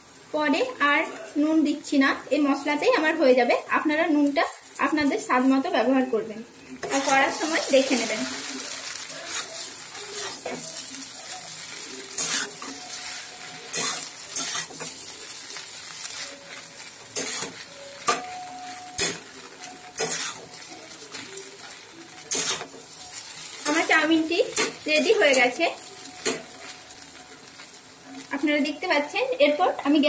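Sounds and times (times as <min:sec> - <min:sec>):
noodles sizzling: 0:00.0 - 0:30.0
metal spatula scraping pan: 0:06.8 - 0:21.1, 0:22.2 - 0:26.8.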